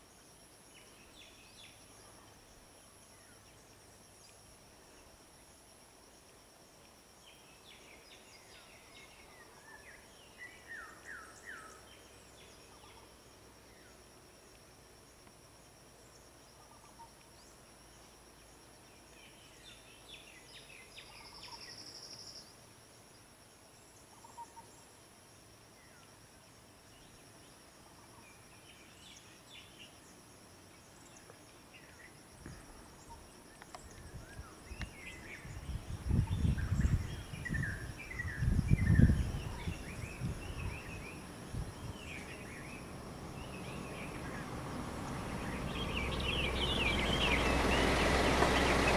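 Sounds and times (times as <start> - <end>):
insect drone: 0.0 - 48.9
birds chirping: 32.9 - 48.9.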